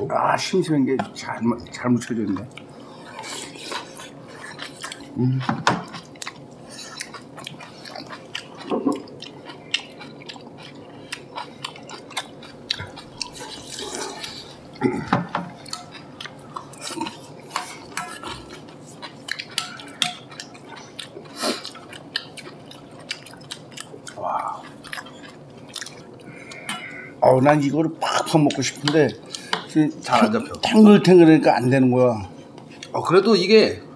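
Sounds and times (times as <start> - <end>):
chopsticks and spoons clinking bowls: 16.7 - 20.8.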